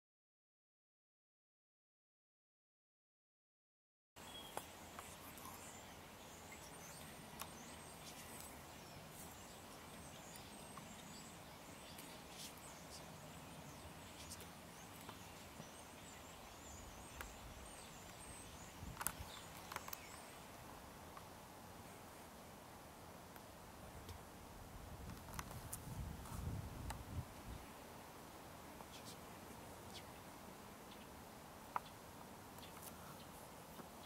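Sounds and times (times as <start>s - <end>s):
small birds chirping: 4.2s - 22.6s, 25.0s - 34.0s
low steady hiss: 4.2s - 34.0s
soft clicks and rustles: 17.0s - 20.4s, 25.0s - 27.5s, 32.6s - 34.0s.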